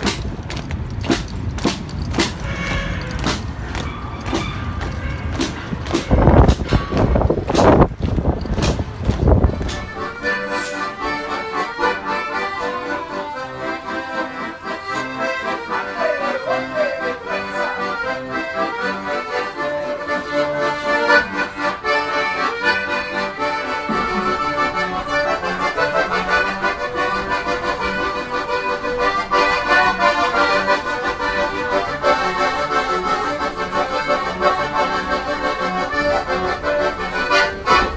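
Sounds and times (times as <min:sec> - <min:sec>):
low bass beat: 0:00.0 - 0:13.1, 0:22.9 - 0:29.2
accordion playing: 0:01.0 - 0:37.9.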